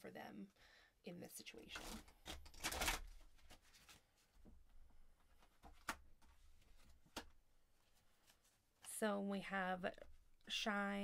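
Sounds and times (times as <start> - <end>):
cards rustling: 1.7 - 4.3.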